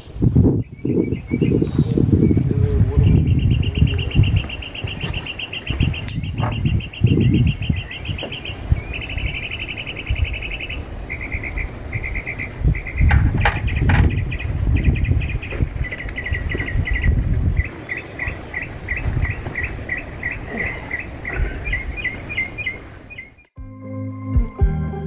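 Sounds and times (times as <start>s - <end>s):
low thuds and knocking: 4.4s - 6.8s, 13.0s - 14.3s.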